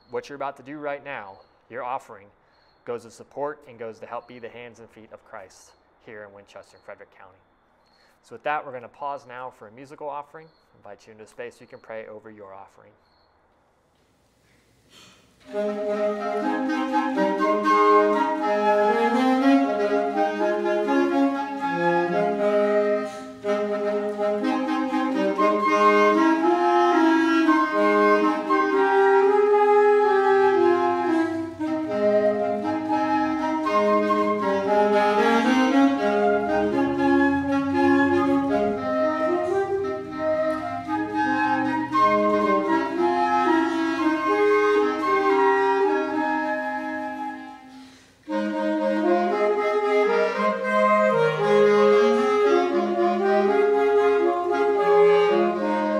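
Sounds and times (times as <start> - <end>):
woodwind trio playing slow piece: 15.0 - 55.9.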